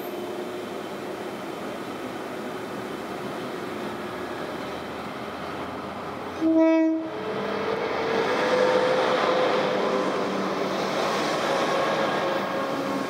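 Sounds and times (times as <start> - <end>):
locomotive engine and wheel noise: 0.0 - 6.5, 7.1 - 13.0
train rumble: 0.0 - 13.0
train horn blast: 6.3 - 7.2.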